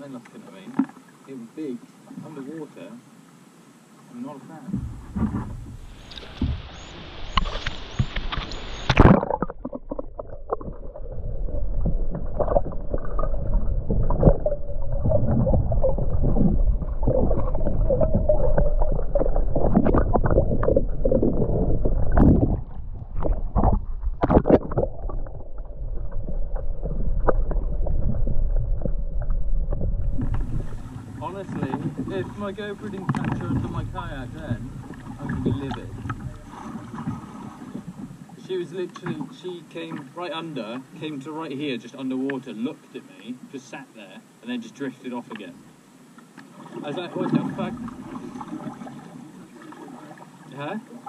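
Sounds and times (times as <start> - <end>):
underwater rumble of water: 0.0 - 42.6, 44.4 - 51.0
sea water splashing: 0.0 - 51.0
underwater knocks and gurgles: 0.7 - 1.1, 4.6 - 39.3, 46.1 - 51.0.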